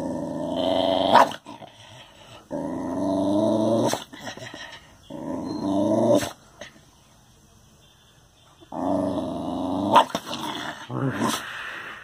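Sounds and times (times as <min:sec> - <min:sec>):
dog growling: 0:00.0 - 0:06.4, 0:08.7 - 0:11.5.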